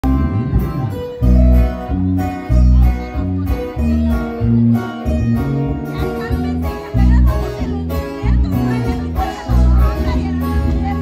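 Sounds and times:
drums: 0:00.0 - 0:11.0
heavy electric bass line: 0:00.0 - 0:11.0
strummed acoustic guitars: 0:00.0 - 0:11.0.

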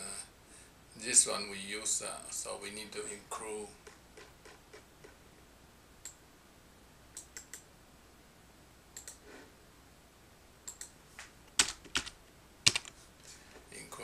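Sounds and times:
computer mouse and keyboard clicks: 0:07.2 - 0:07.6, 0:09.0 - 0:09.2, 0:12.7 - 0:13.0.

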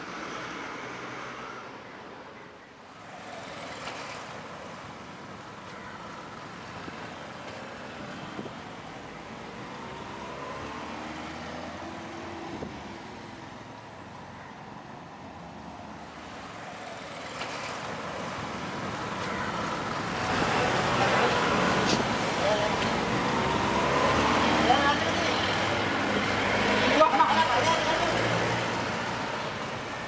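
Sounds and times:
cars and truck driving past: 0:00.0 - 0:05.2, 0:06.0 - 0:14.4, 0:15.0 - 0:30.0.

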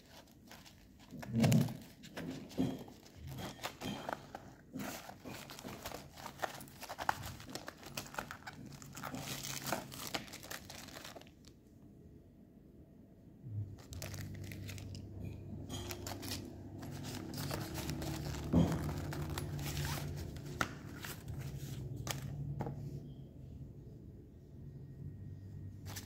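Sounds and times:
plastic bag and paper crinkling: 0:00.0 - 0:11.6, 0:13.8 - 0:22.6.

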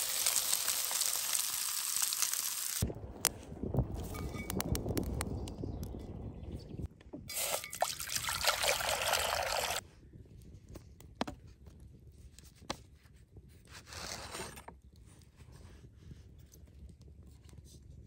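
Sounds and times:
water pouring into a pot: 0:00.0 - 0:02.8, 0:07.3 - 0:09.8.

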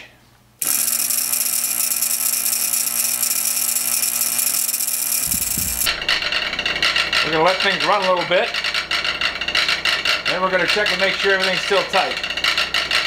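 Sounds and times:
electric motor humming: 0:03.0 - 0:06.9.

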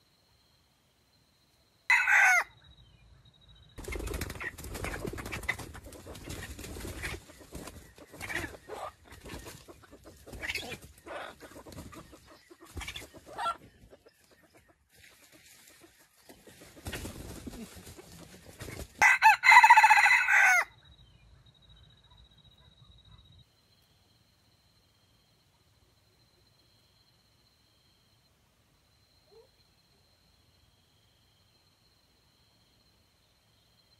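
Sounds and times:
rooster crowing: 0:01.9 - 0:02.5, 0:19.0 - 0:20.8
soft clucks: 0:04.8 - 0:18.9.

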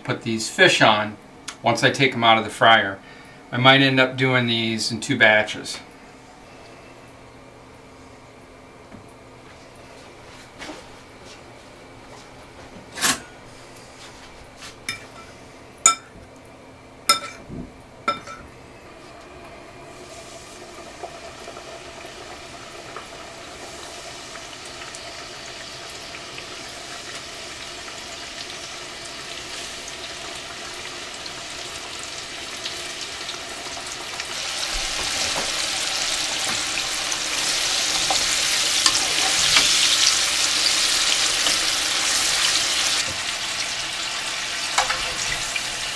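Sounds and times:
fish deep-frying in oil: 0:20.0 - 0:45.9.

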